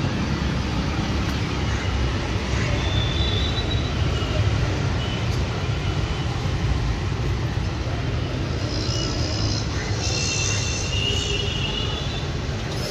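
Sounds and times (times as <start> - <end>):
street noise rumble: 0.0 - 12.9.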